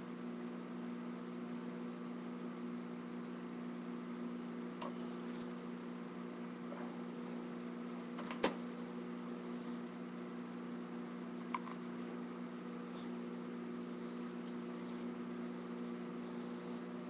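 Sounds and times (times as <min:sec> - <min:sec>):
low electrical hum: 0:00.0 - 0:17.0
vinyl record clicks and knocks: 0:08.2 - 0:08.6.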